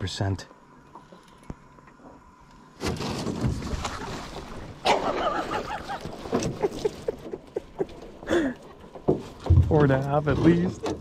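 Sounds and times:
water streaming off net: 0:02.8 - 0:06.7.

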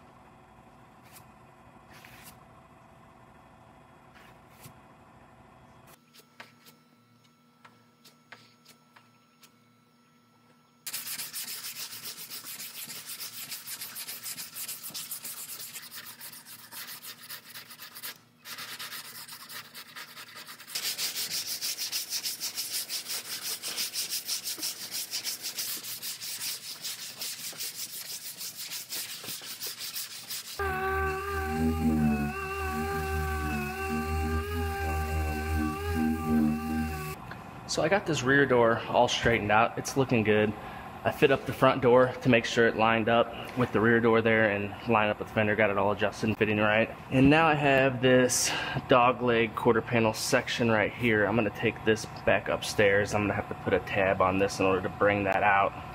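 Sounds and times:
sandpaper rasping strokes: 0:10.9 - 0:37.2
music: 0:30.6 - 0:37.2.

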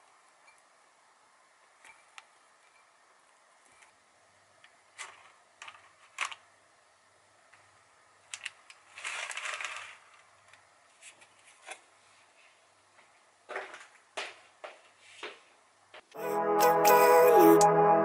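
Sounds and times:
batter scraping rustle: 0:08.8 - 0:12.6.

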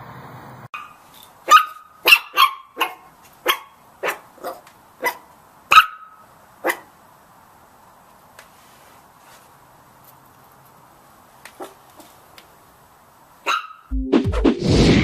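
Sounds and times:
puppy barking: 0:00.8 - 0:06.9, 0:11.6 - 0:12.1, 0:13.4 - 0:13.9.

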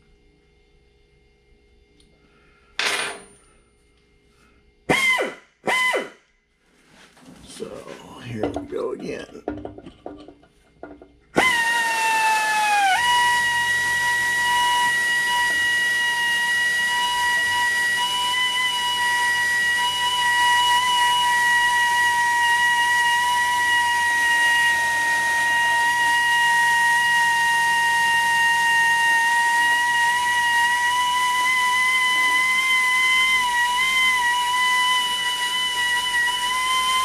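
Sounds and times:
drill whining: 0:04.9 - 0:06.2, 0:10.8 - 0:37.0.

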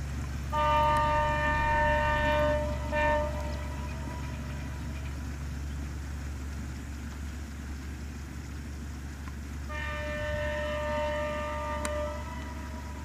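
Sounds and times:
steady low rumble: 0:00.0 - 0:13.0
railcar horn blast: 0:00.5 - 0:05.4, 0:09.7 - 0:13.0.

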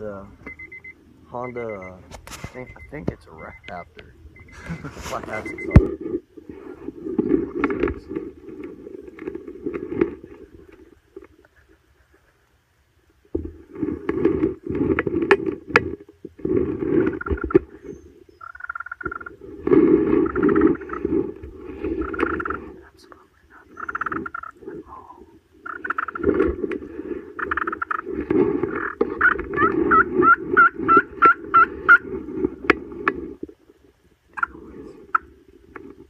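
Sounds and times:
turkey call raspy yelps: 0:17.1 - 0:19.3, 0:20.2 - 0:21.1, 0:23.7 - 0:24.6, 0:25.6 - 0:26.3, 0:28.7 - 0:32.1.

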